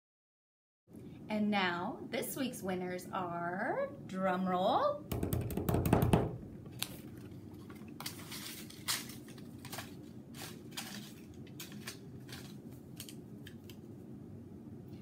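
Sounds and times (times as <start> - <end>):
low steady hum: 0.9 - 15.0
paper slips rustling in basket: 8.0 - 12.6.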